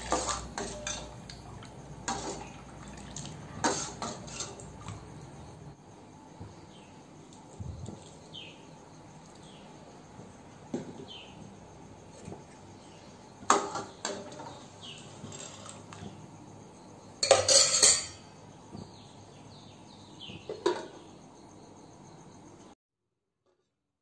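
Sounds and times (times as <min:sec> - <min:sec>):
metal pot lid clinking: 0:17.2 - 0:18.2.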